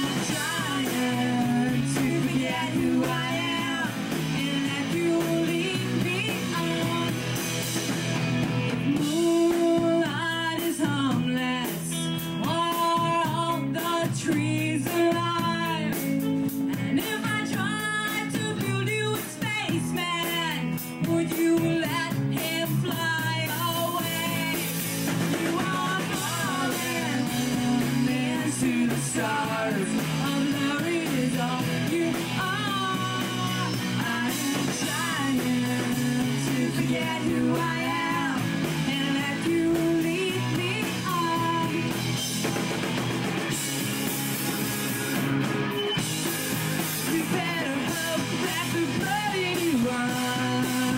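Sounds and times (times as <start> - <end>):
person singing: 0.0 - 7.6, 8.9 - 42.3, 46.8 - 50.9
drum kit: 0.0 - 50.9
electric guitars: 0.0 - 50.9.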